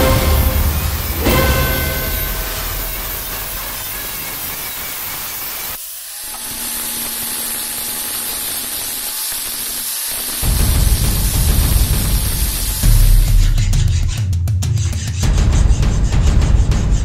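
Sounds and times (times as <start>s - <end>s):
angle grinder cutting steel: 0.0s - 13.6s
angle grinder grinding steel: 0.0s - 13.6s.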